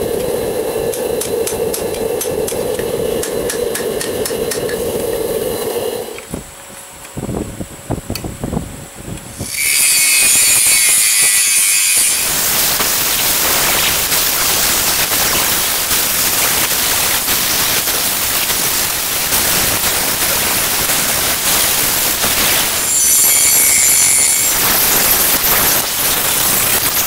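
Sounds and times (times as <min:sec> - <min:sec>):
angle grinder whining: 0:09.3 - 0:27.0
grinder disc grinding steel: 0:09.4 - 0:27.0.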